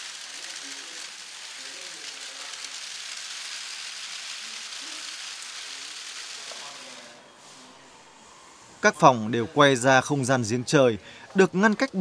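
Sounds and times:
rain falling: 0.0 - 7.0.

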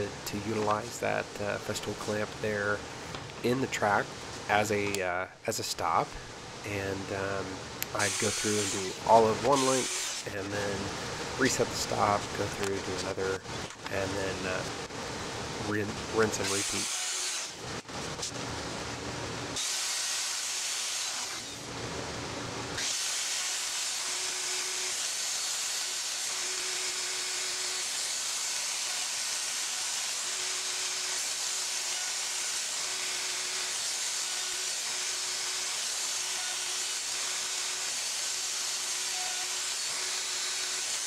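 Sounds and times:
router hissing through wood: 7.9 - 12.0, 16.2 - 17.6, 19.6 - 21.7, 22.8 - 41.0.

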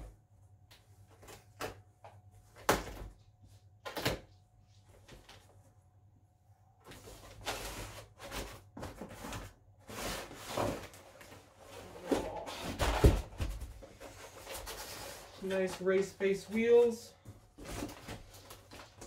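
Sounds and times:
packaging rustling and scraping: 6.9 - 19.0.

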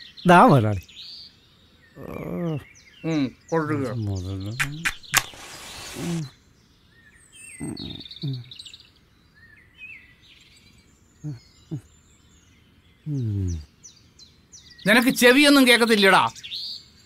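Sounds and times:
birds chirping: 0.0 - 17.0
short low human voice sounds: 13.1 - 13.7.

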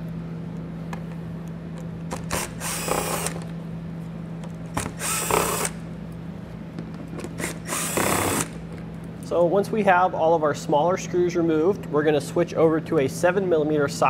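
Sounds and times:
cordless driver whirring: 2.1 - 3.5, 4.7 - 5.8, 7.2 - 8.6.

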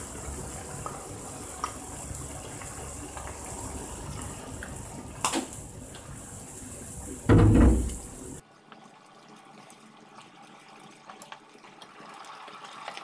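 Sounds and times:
broth simmering and bubbling: 0.0 - 13.0.

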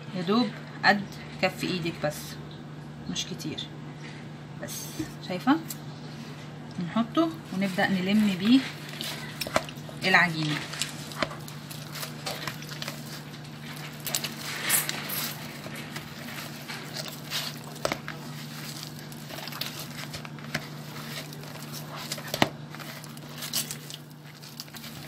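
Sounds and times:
steady low hum: 0.0 - 25.0
hands kneading wet dough: 6.8 - 25.0.

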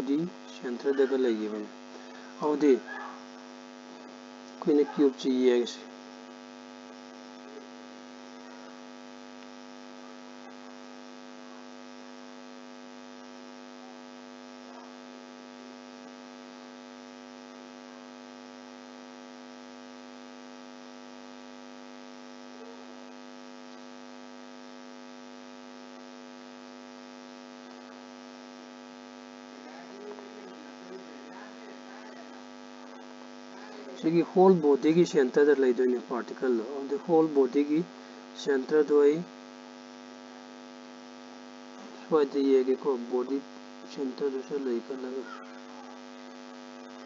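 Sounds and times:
buzzy electrical hum: 0.0 - 47.0.

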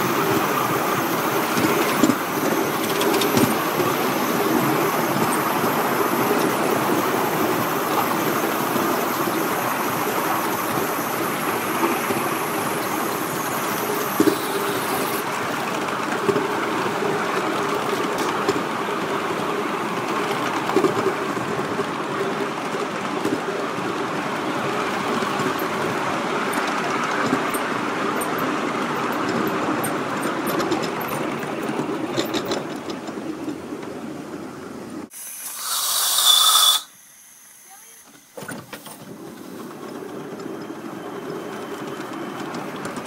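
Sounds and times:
steam hiss: 0.0 - 15.3, 35.1 - 39.8
model steam locomotive running: 0.0 - 43.0.

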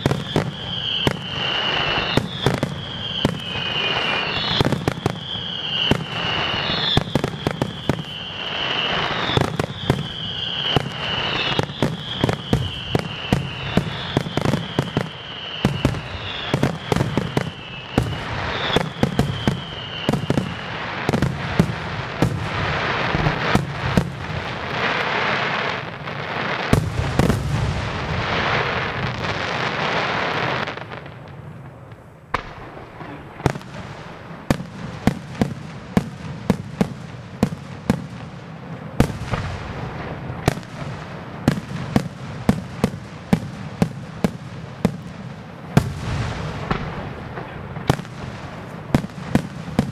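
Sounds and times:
high firework whistle: 0.0 - 31.0
firework crackling: 0.0 - 49.9.

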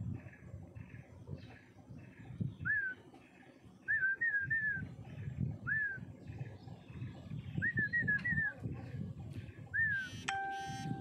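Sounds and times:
faint repeating chirring: 10.0 - 11.0.

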